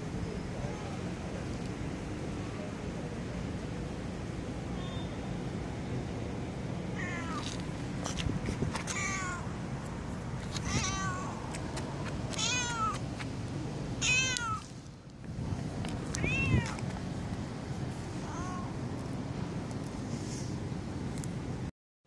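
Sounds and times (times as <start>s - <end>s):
low background noise: 0.0s - 21.7s
cat meowing: 7.0s - 7.5s, 8.8s - 9.4s, 10.6s - 11.4s, 12.3s - 13.0s, 14.0s - 14.7s, 16.1s - 16.8s, 18.2s - 18.7s.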